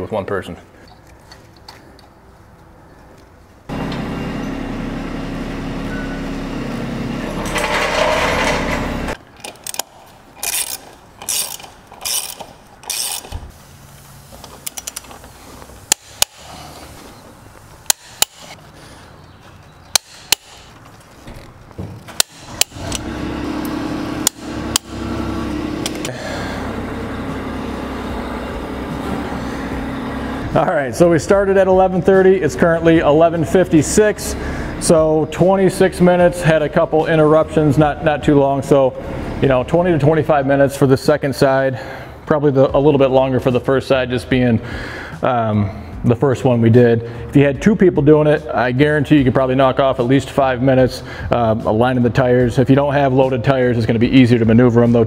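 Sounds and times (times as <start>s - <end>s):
steady mechanical hum: 0.9s - 42.8s
torque wrench clicks: 9.4s - 13.4s, 15.9s - 16.5s, 17.9s - 18.6s, 19.9s - 20.8s, 22.2s - 23.0s
ratchet wrench bursts: 9.6s - 13.4s, 15.9s - 16.7s, 17.8s - 18.6s, 19.9s - 20.8s, 22.2s - 23.1s.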